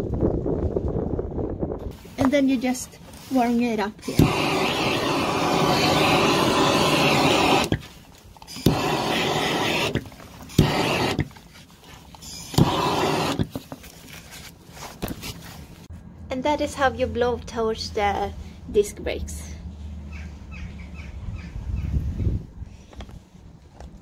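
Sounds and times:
blowtorch ignition click: 0:04.0 - 0:07.8, 0:08.4 - 0:11.3, 0:12.2 - 0:13.5
blowtorch flame hissing: 0:04.0 - 0:11.4, 0:12.2 - 0:13.6.

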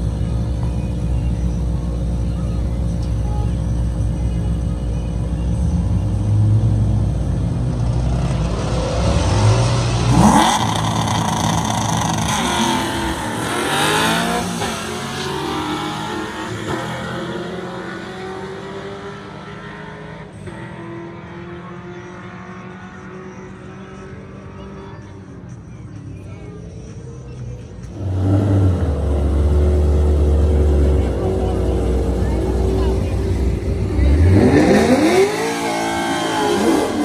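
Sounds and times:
drag racing car engines revving: 0:05.6 - 0:25.6, 0:27.6 - 0:37.0.

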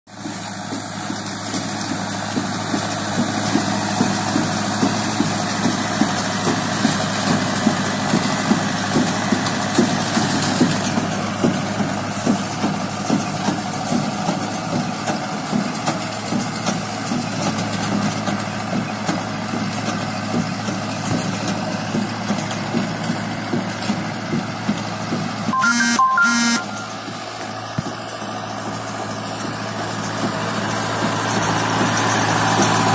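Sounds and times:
diesel tractor running under load: 0:00.1 - 0:32.9
short beeping tone: 0:25.6 - 0:27.6.

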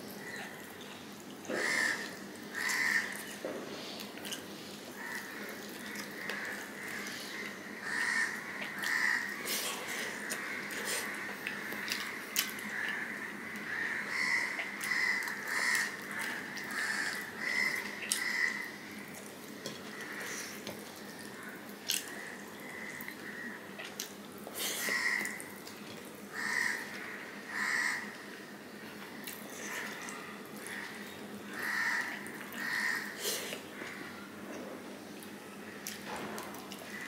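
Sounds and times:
wet chewing and lip smacks: 0:10.3 - 0:13.0.

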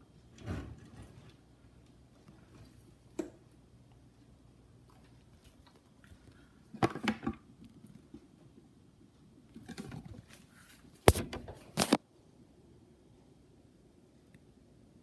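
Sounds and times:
camera handling rustles: 0:11.1 - 0:12.0.

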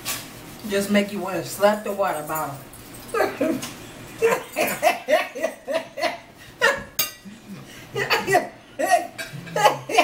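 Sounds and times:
woman laughing: 0:03.2 - 0:03.6, 0:04.2 - 0:10.0.

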